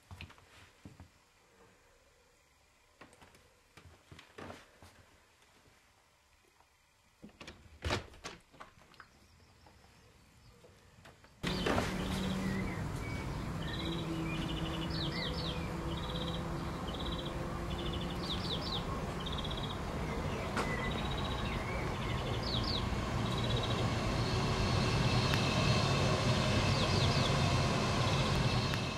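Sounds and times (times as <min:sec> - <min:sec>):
small birds chirping: 0:08.9 - 0:28.9
distant traffic rumble: 0:11.4 - 0:28.9.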